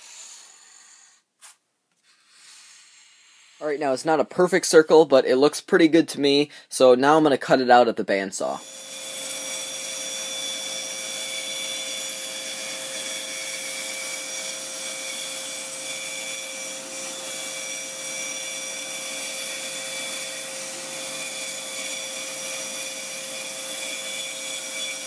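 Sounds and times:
bandsaw cutting plywood: 8.5s - 25.0s.

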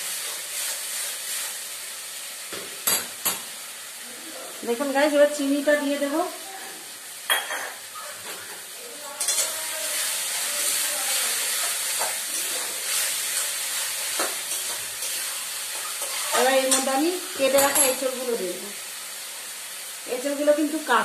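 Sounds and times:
masala sizzling in hot oil: 0.0s - 21.0s
spatula scraping pan: 7.6s - 18.0s.

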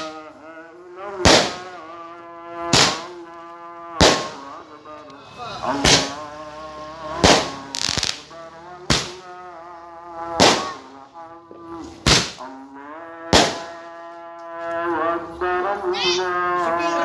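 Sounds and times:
fireworks bangs: 1.2s - 1.8s, 2.6s - 3.2s, 4.0s - 4.5s, 5.7s - 6.2s, 7.2s - 9.4s, 10.3s - 11.0s, 12.0s - 12.5s, 13.3s - 13.8s
fireworks crackling: 1.2s - 2.0s, 2.6s - 4.6s, 5.7s - 6.2s, 7.2s - 9.4s, 10.3s - 11.0s, 12.0s - 12.5s, 13.3s - 13.8s.

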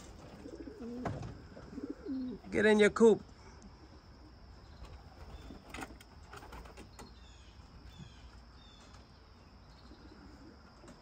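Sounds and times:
small birds chirping: 0.0s - 11.0s
pigeon cooing: 0.2s - 2.5s.

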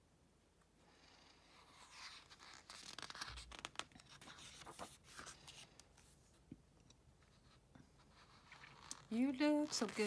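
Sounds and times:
photobook page turning: 1.6s - 6.2s, 8.2s - 10.0s.

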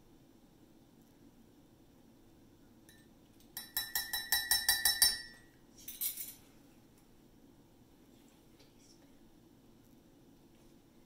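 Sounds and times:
spoon clinking against ceramic mug: 2.9s - 6.4s.

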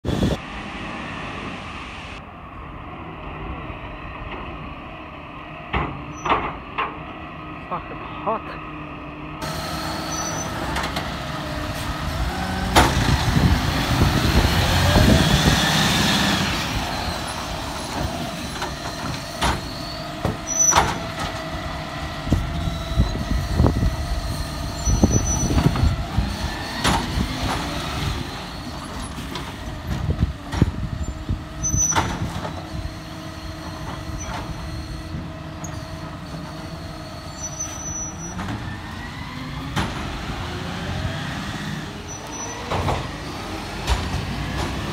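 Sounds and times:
garbage truck diesel engine revving: 8.6s - 44.9s.

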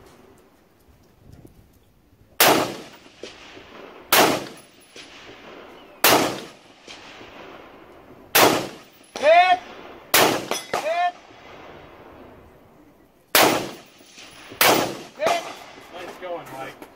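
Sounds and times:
rifle shots with echo: 2.4s - 12.4s, 13.3s - 16.7s.

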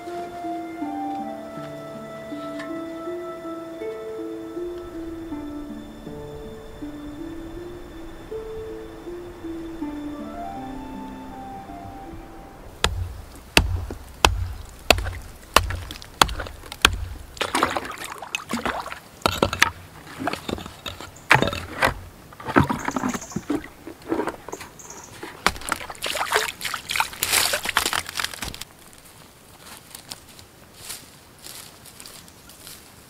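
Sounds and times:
bucket sloshing through icy water: 12.7s - 28.7s
pond ice breaking knocks: 12.8s - 28.7s.

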